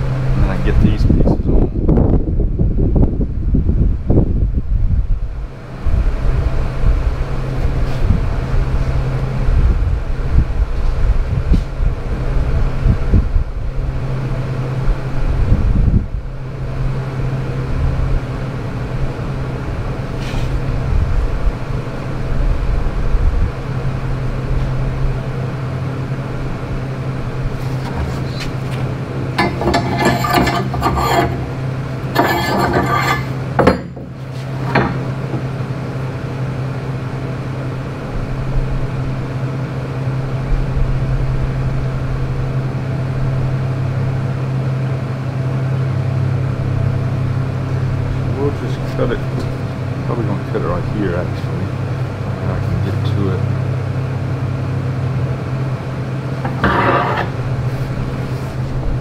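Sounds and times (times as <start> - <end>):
low shop hum: 0.0 - 59.0
metallic clattering and scraping: 27.5 - 35.6, 56.4 - 58.6.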